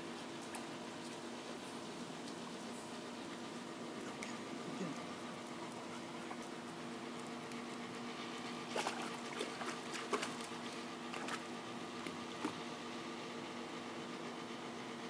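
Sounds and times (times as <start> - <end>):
steady hum: 0.0 - 15.0
light water splashes: 8.6 - 12.6.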